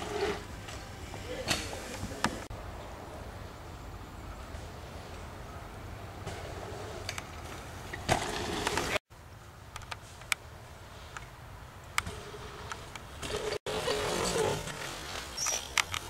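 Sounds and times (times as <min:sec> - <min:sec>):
bike landing thump: 0:08.0 - 0:08.6
bike clicks and rattles: 0:14.7 - 0:16.0.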